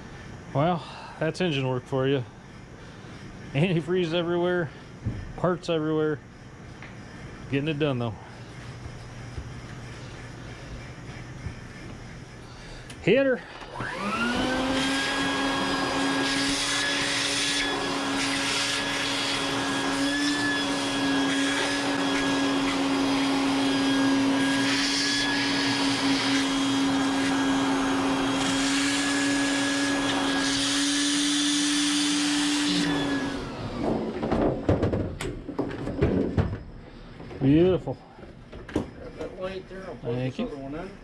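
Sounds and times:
shop vacuum running: 0:03.4 - 0:06.2, 0:06.8 - 0:35.3
knocks: 0:33.8 - 0:36.7.

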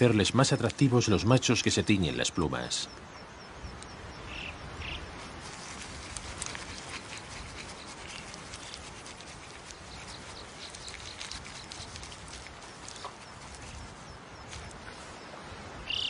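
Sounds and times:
feathers rustling in dry dirt: 0:04.9 - 0:15.8
grit clicking and pattering: 0:05.3 - 0:14.9.

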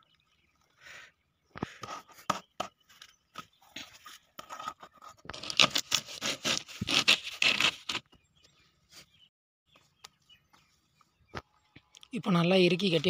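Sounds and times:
rope rustling and scraping on pipe: 0:01.6 - 0:08.0.

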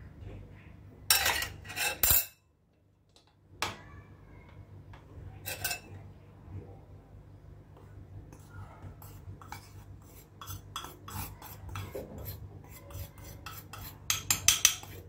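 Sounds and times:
flour sifting through sieve: 0:08.3 - 0:15.0.

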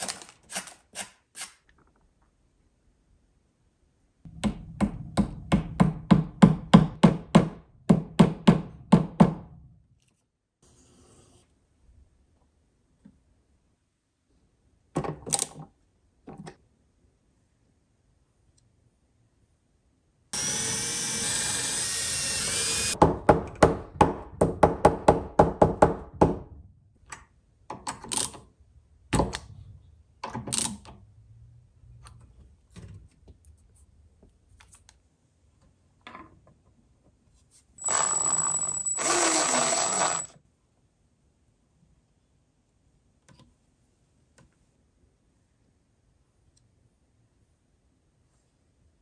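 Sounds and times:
cordless power driver running: 0:20.4 - 0:23.0, 0:37.8 - 0:40.3.

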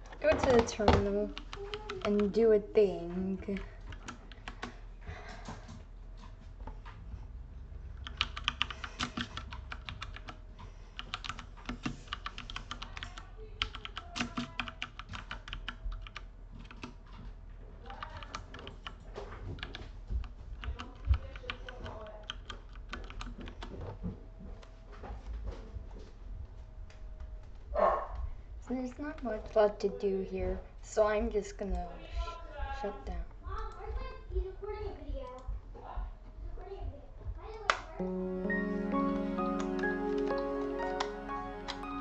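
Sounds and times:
typing on keyboard: 0:00.5 - 0:02.4, 0:03.5 - 0:04.8, 0:08.0 - 0:17.1, 0:17.8 - 0:23.8.

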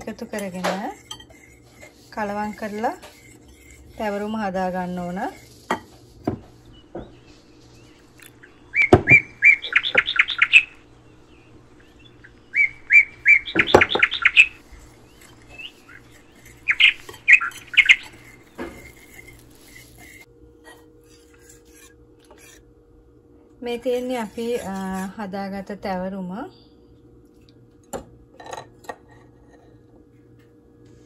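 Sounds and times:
faint steady hum: 0:00.0 - 0:31.0
whisk knocking against bowl: 0:00.1 - 0:04.2
bird chirping: 0:06.5 - 0:19.1.

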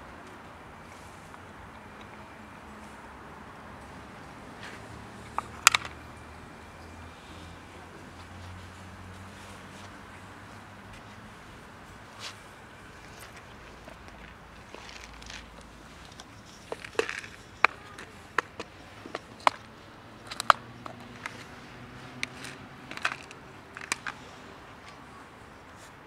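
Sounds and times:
plastic lid clips clicking: 0:16.1 - 0:19.7, 0:20.3 - 0:21.5, 0:22.2 - 0:24.2.

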